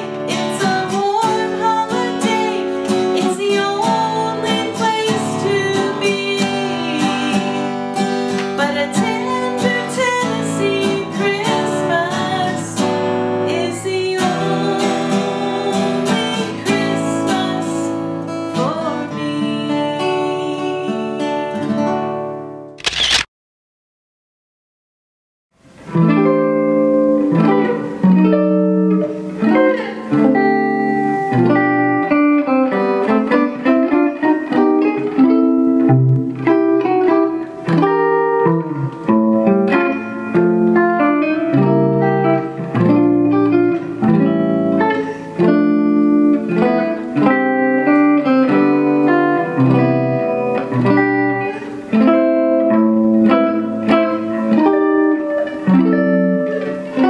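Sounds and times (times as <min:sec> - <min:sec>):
electric guitar playing: 0:00.0 - 0:22.8, 0:25.6 - 0:57.0.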